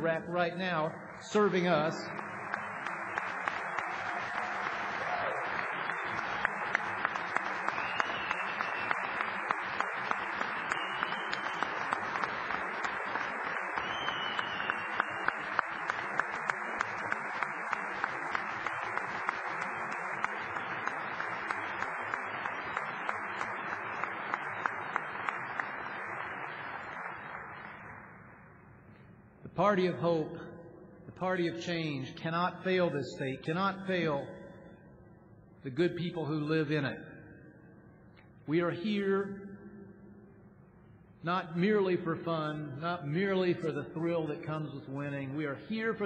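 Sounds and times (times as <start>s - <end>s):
large audience applauding: 1.4s - 28.3s.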